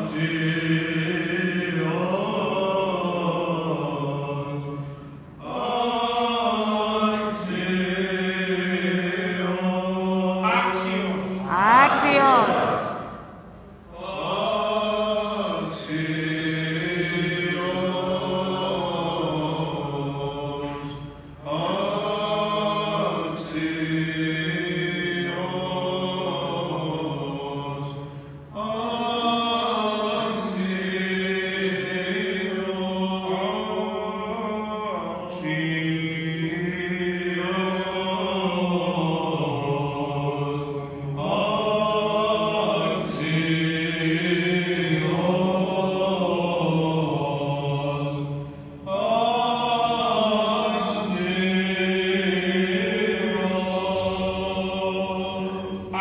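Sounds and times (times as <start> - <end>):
voices chanting with drone: 7.4 - 20.4.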